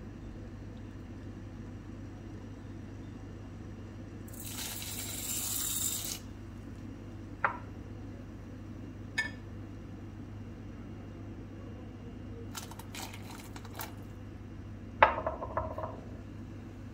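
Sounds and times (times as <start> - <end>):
dry pasta pouring into pot: 4.3 - 6.2.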